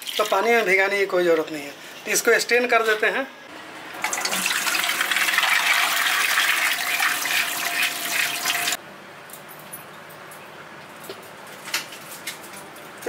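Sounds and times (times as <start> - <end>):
water splashing into metal colander: 4.0 - 8.8.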